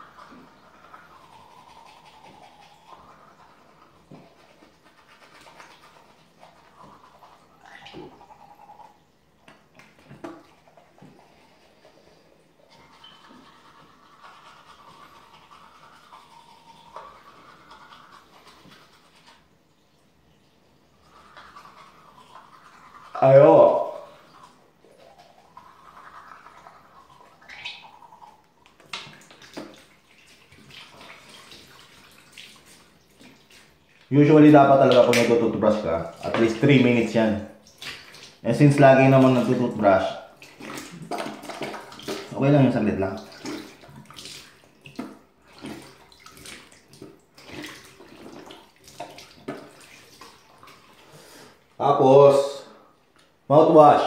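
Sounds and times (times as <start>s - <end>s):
toothbrush scrubbing: 0.0s - 9.0s, 9.8s - 19.5s, 21.0s - 37.3s, 38.4s - 44.6s
tap water running into sink: 21.1s - 51.2s.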